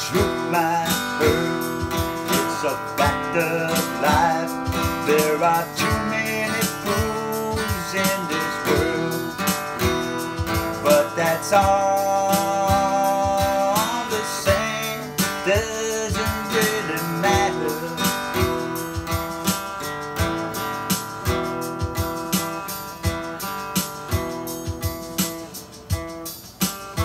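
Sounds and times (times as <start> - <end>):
person singing: 0.0 - 19.2
acoustic guitar strumming: 0.0 - 27.0.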